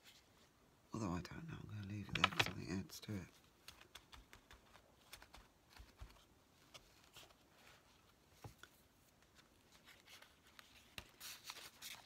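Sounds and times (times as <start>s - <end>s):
paper rustling: 1.9s - 12.0s.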